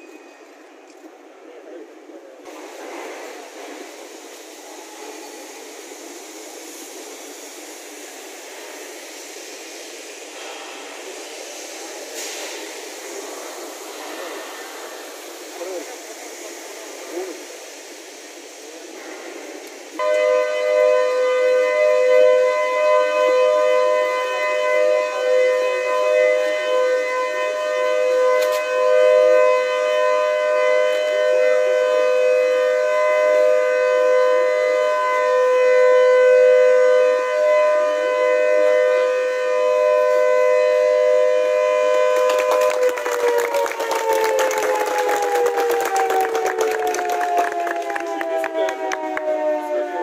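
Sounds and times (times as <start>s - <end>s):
siren two-pitched tone: 20.0s - 29.8s
applause: 41.9s - 49.3s.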